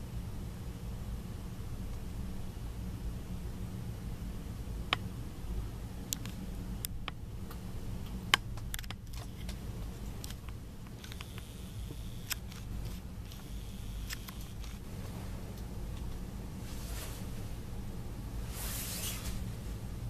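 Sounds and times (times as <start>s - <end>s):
steady low rumble: 0.0s - 20.0s
sharp clicks: 10.2s - 14.8s.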